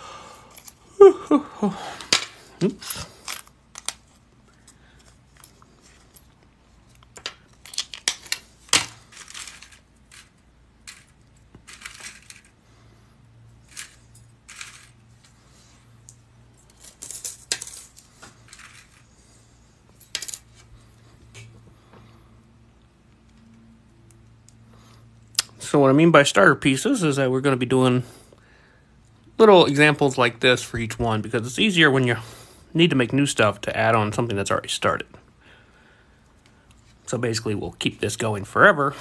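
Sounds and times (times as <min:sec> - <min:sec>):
small metal parts clinking: 0:00.5 - 0:00.8, 0:02.0 - 0:12.6, 0:13.5 - 0:20.7.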